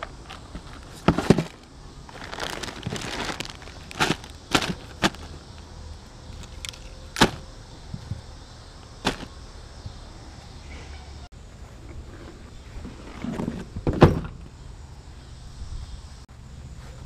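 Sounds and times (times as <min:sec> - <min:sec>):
gear bags rustling: 0:00.0 - 0:05.5, 0:06.3 - 0:07.5, 0:09.0 - 0:09.3.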